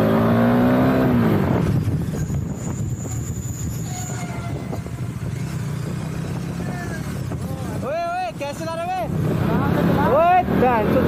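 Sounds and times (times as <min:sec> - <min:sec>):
motorcycle engine revving: 0:00.0 - 0:02.7, 0:04.7 - 0:07.8, 0:09.0 - 0:11.0.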